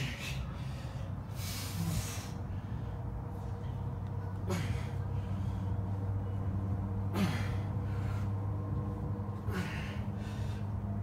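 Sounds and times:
man exhaling hard: 0.0 - 2.4
steady low hum: 0.0 - 11.0.

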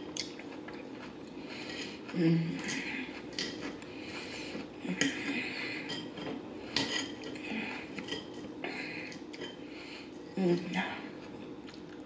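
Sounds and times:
fork scraping a plate: 1.5 - 8.6.

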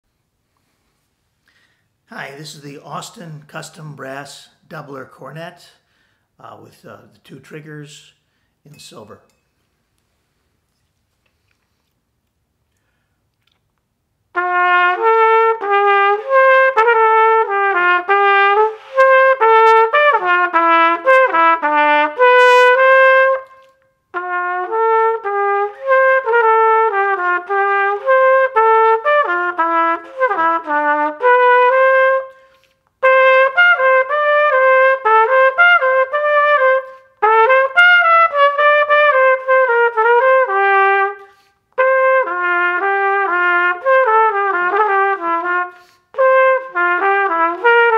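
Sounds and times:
cornet playing a melody: 14.3 - 47.9.

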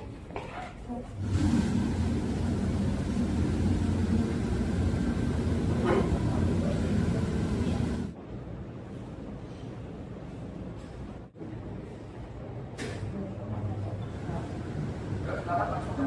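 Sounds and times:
fan and sprayer hum: 1.2 - 8.2.

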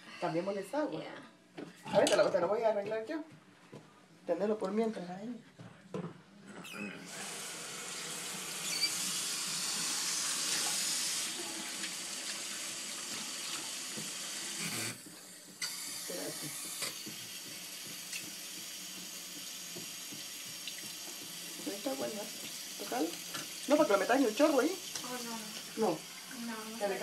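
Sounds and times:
faucet running into sink: 7.0 - 27.0.

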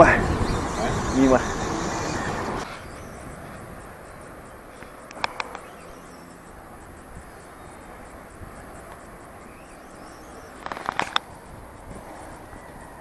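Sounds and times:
steady outdoor hiss: 0.0 - 13.0
sharp clicks: 4.8 - 6.0, 10.6 - 11.3.

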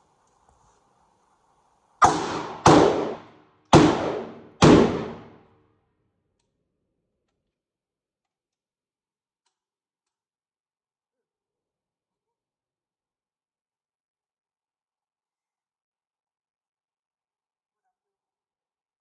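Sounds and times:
gunshots with echo: 2.0 - 5.4.

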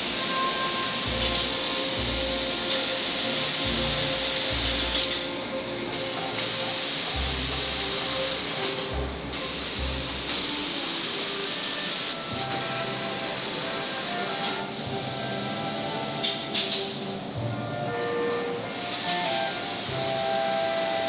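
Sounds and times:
spray guns hissing: 5.9 - 16.7, 18.7 - 21.0.

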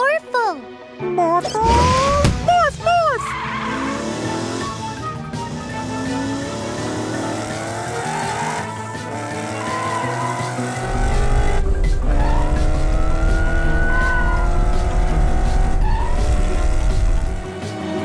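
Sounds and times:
background music: 0.0 - 18.0
cartoon race car engines revving: 3.3 - 17.5
deep low rumble: 10.8 - 17.5.

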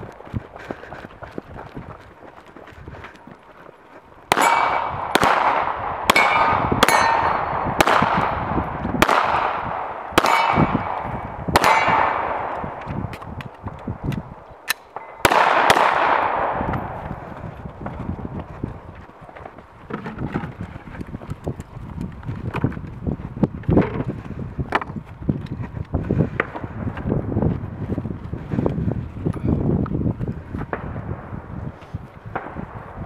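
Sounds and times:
steel plate target ringing: 4.3 - 4.9, 6.1 - 7.6, 10.2 - 10.9, 11.6 - 12.1
pistol shots: 4.3 - 12.9, 14.7 - 17.0.

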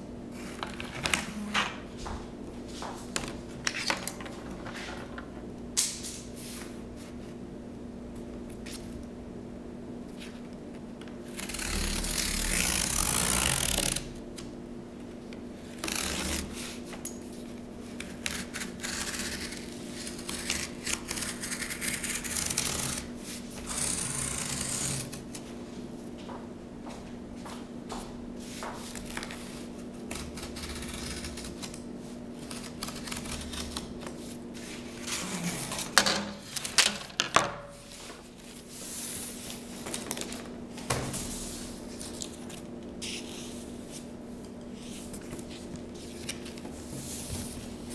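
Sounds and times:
steady low hum: 0.0 - 47.9
scratchy cutting sounds: 11.3 - 14.0, 18.1 - 25.2, 30.1 - 31.8.

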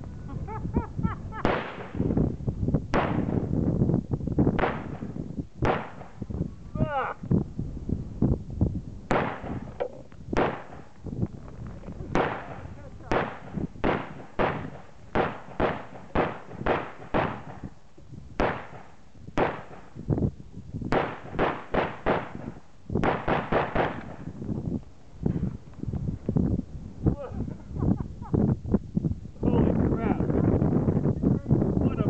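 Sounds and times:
rifle shots with echo: 1.4 - 2.0, 2.9 - 3.5, 4.6 - 6.2, 9.1 - 9.8, 10.4 - 10.9, 12.1 - 17.6, 18.4 - 19.9, 20.9 - 24.3.

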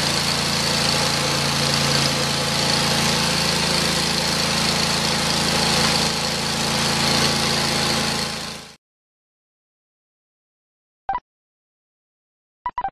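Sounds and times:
sawmill engine running: 0.0 - 8.8.

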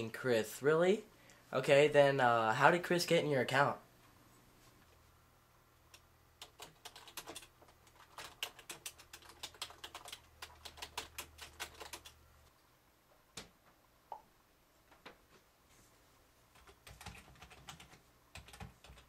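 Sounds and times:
typing on a computer keyboard: 5.9 - 12.2, 16.6 - 19.0.

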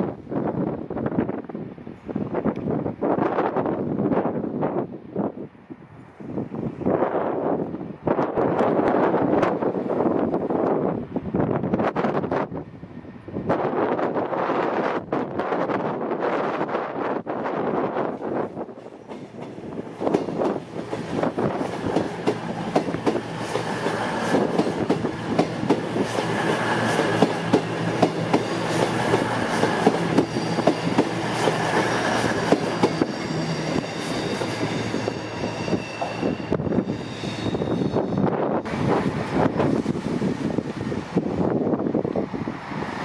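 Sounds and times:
low train engine hum: 0.0 - 43.0.

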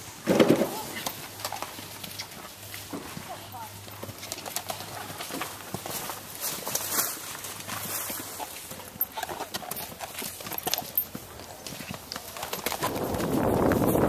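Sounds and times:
horse hooves thudding and clattering: 0.0 - 14.0
wind rushing on microphone: 12.8 - 14.0.

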